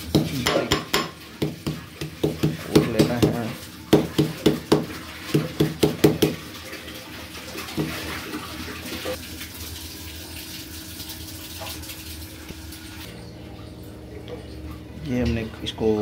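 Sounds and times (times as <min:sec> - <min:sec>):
metal pestle pounding in mortar: 0:00.0 - 0:06.4.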